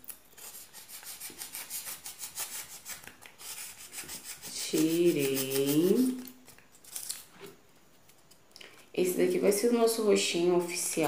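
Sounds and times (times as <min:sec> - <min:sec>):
knife scraping styrofoam: 0:00.3 - 0:07.5.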